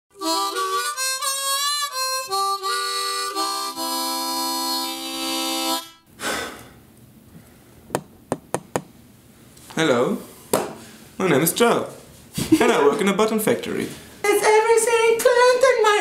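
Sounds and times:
blues harmonica playing: 0.1 - 6.1.

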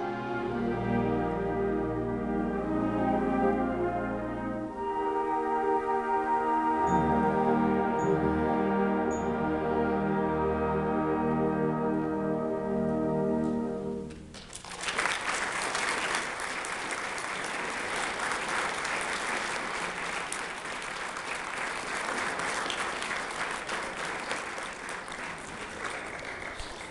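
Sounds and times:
audience applauding: 14.2 - 26.9.

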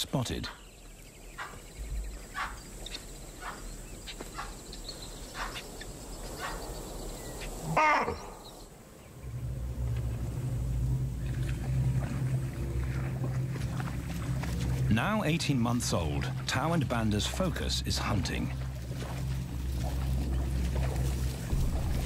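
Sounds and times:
baboon alarm barks: 3.4 - 3.7, 6.4 - 6.6
low steady hum: 8.0 - 22.0.

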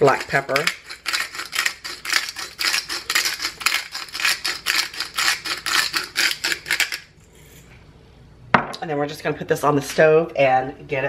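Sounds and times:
metal spoon scraping pan: 0.0 - 7.7.

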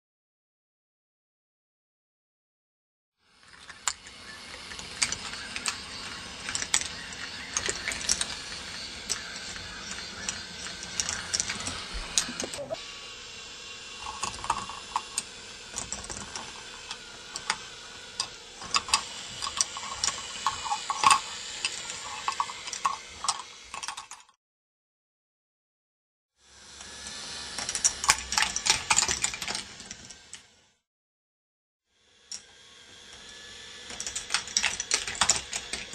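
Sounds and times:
mechanical whir: 3.2 - 24.3, 26.4 - 30.8, 32.0 - 35.9
plastic balls clicking on tracks: 3.5 - 12.6, 14.0 - 24.3, 27.6 - 30.4, 33.9 - 35.9.

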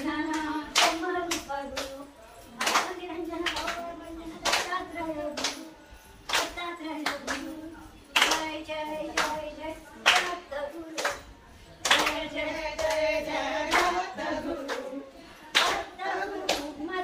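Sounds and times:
women singing folk song: 0.0 - 11.2, 11.9 - 17.0
hands clapping in time: 0.3 - 2.0, 2.6 - 7.5, 8.2 - 10.4, 11.0 - 13.1, 13.7 - 14.0, 14.6 - 16.8.

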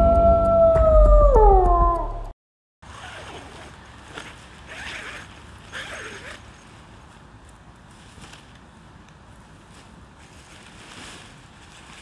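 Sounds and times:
intro music: 0.0 - 2.3
tent fabric rustling and crinkling: 2.8 - 12.0.

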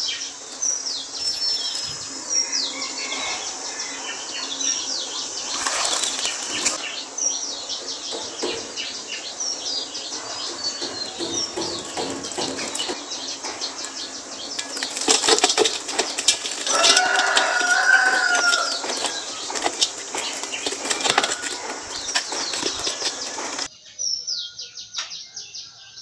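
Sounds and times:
small birds chirping: 0.0 - 26.0
rustling: 10.2 - 23.7.

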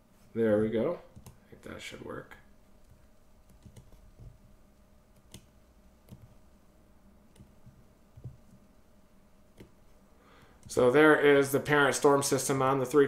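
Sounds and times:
computer mouse clicks: 1.1 - 1.4, 2.8 - 4.4, 5.2 - 6.4, 7.3 - 8.6.

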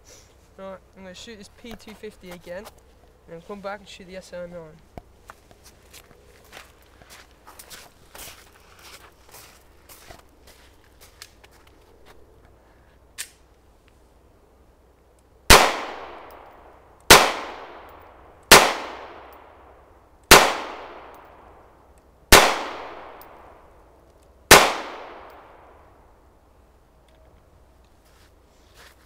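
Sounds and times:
pistol shots with echo: 15.5 - 19.7, 20.3 - 21.5, 22.3 - 23.5, 24.5 - 25.8.

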